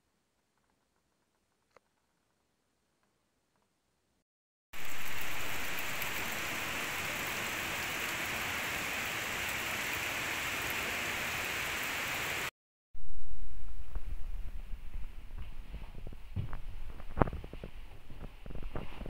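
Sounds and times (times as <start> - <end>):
hiss of falling water: 4.8 - 12.5.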